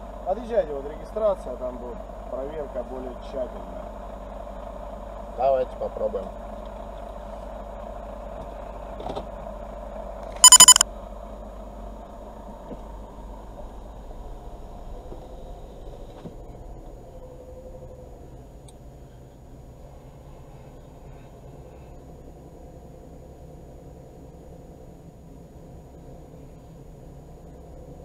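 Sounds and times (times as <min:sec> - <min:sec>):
high-pitched electronic beeps: 0:10.4 - 0:10.8.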